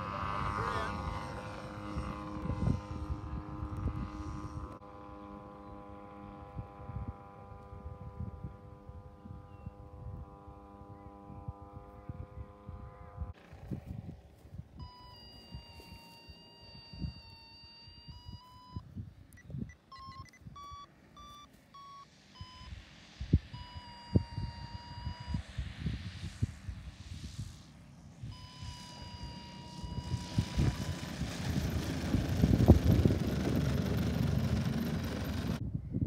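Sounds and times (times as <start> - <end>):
electronic beeping changing pitch: 14.8 - 18.8, 19.4 - 22.8, 23.5 - 25.5, 28.2 - 34.8.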